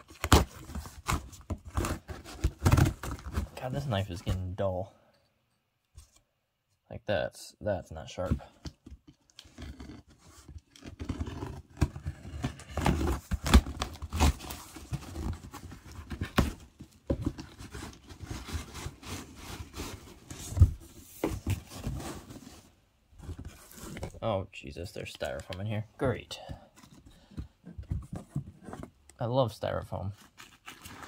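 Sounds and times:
cardboard flaps rustling and knocking: 11.7 - 24.2, 26.5 - 29.0.

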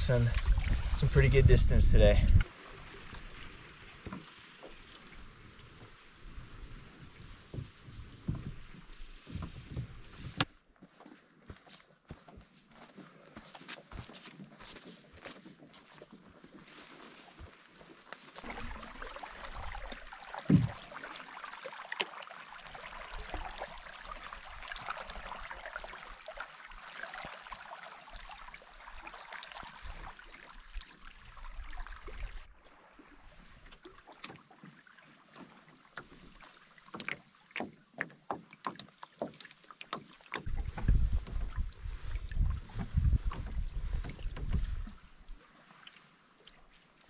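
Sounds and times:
wind rumbling on microphone: 0.0 - 3.4, 40.4 - 45.4
paddle strokes splashing: 0.0 - 12.6, 13.4 - 47.0.

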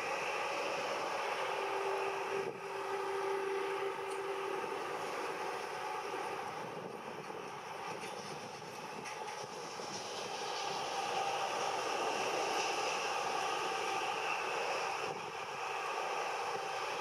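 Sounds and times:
jet engines roaring: 0.0 - 17.0
steady hum: 0.0 - 17.0.

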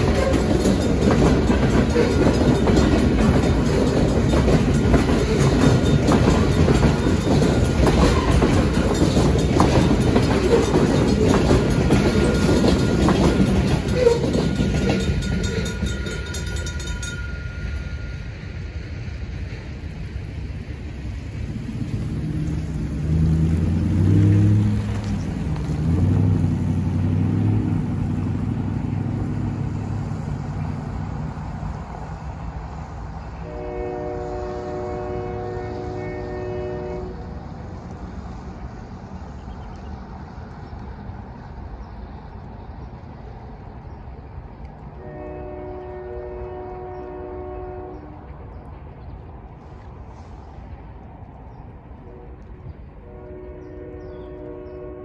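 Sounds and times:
distant locomotive air horn: 0.0 - 2.5, 10.3 - 18.1, 33.4 - 37.4, 45.0 - 48.3, 52.1 - 55.0
low rumble of departing train: 0.0 - 55.0.

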